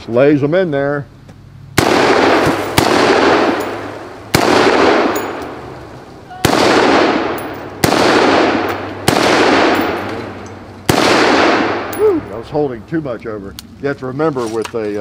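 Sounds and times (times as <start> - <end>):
rifle shots with rolling echo: 1.7 - 12.7.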